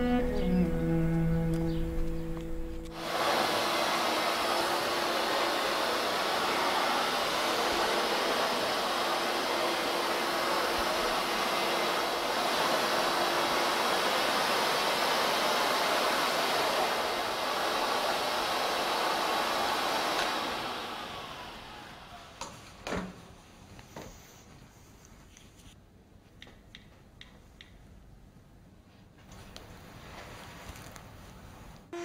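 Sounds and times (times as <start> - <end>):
vacuum cleaner running: 0.0 - 23.1.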